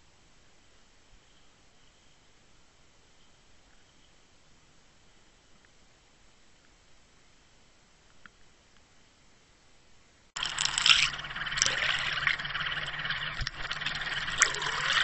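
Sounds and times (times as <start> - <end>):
faint low hum: 0.0 - 15.0
water rushing and gurgling: 10.4 - 15.0.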